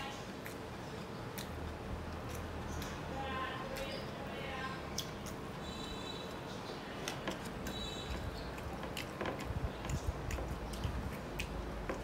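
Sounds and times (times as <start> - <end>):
man chewing with wet mouth clicks: 0.3 - 3.1, 4.9 - 6.4, 7.0 - 12.0
fingers squishing rice: 7.0 - 12.0.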